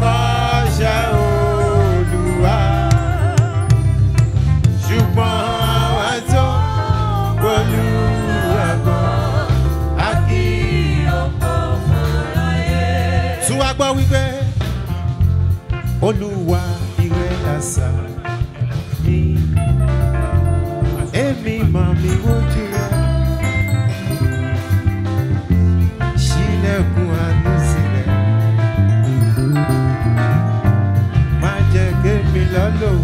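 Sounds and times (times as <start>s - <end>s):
gospel choir singing: 0.0s - 4.1s, 4.8s - 14.6s
lead singer on microphone: 0.0s - 14.6s, 16.0s - 19.8s, 21.0s - 23.1s, 26.1s - 28.3s, 31.4s - 33.0s
amplified band with electric guitars: 0.0s - 33.0s.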